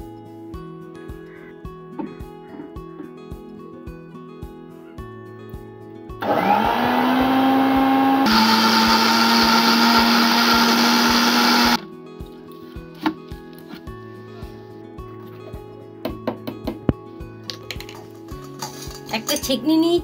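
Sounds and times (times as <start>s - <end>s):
blender motor whining: 6.2s - 11.8s.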